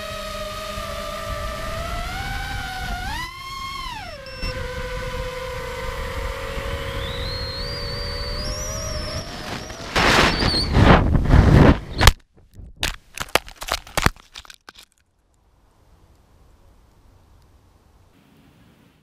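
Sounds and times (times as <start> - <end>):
drone motors whining: 0.0 - 10.9
rush of air: 9.2 - 12.0.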